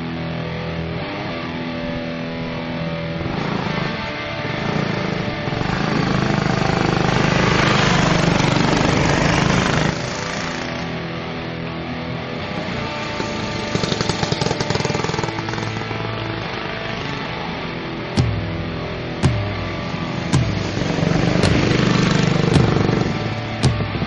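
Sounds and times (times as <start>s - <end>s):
background music: 0.0s - 24.0s
go-kart engines buzzing: 3.3s - 11.0s, 12.4s - 18.2s, 19.1s - 24.0s.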